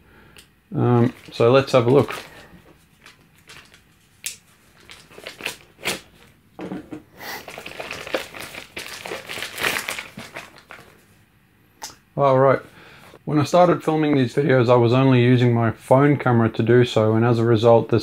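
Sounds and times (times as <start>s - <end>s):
plastic bag crinkling: 0.9s - 6.4s, 7.4s - 11.0s.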